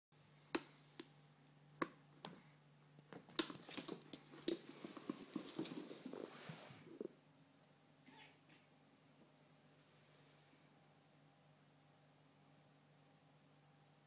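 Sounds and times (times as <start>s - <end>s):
cat paws skittering on floor: 3.2s - 7.0s.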